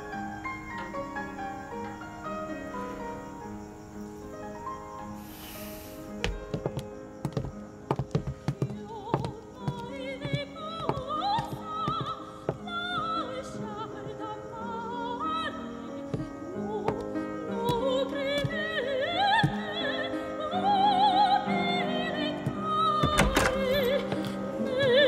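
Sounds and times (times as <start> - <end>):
piano: 0.0 - 25.0
woman singing operatically: 8.6 - 25.0
heavy wooden door thump: 23.0 - 24.0.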